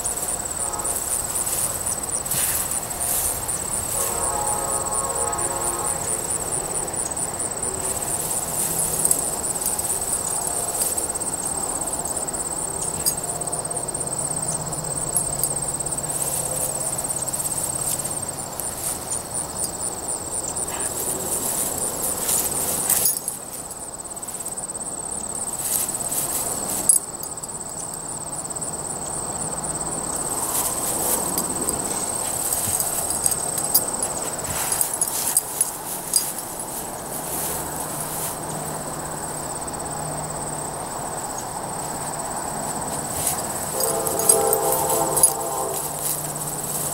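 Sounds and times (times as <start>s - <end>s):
dog rustling through grass: 0.0s - 4.2s, 16.0s - 19.7s, 20.6s - 24.6s, 30.5s - 38.6s, 42.9s - 46.9s
grass insects trilling: 0.0s - 46.9s.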